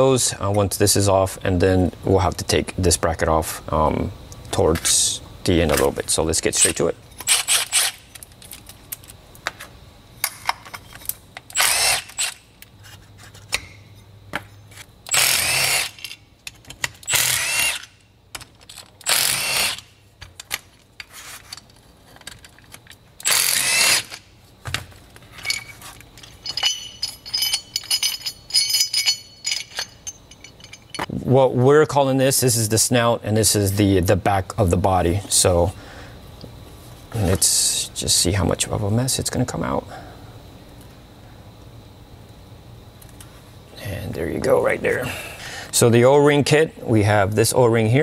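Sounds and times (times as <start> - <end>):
impact wrench spinning bolts: 6.6 - 8.2, 11.5 - 12.4, 15.1 - 17.9, 18.7 - 20.6, 23.2 - 24.3, 25.3 - 31.1
metal clinks of bolts: 25.3 - 31.1.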